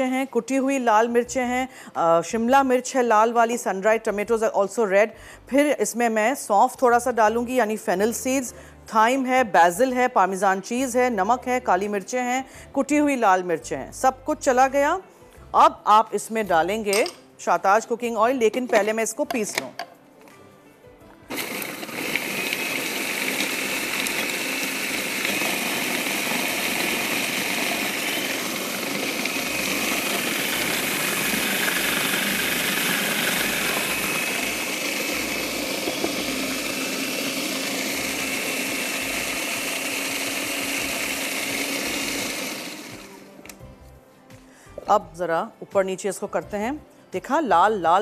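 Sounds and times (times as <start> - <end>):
electric grinder motor whining: 21.3 - 43.3.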